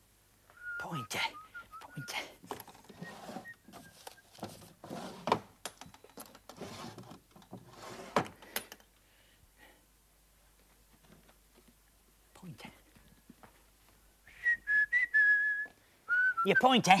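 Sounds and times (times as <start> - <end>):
person whistling: 0.5 - 4.4, 14.3 - 16.8
wooden drawers clunking and rattling: 2.5 - 8.4.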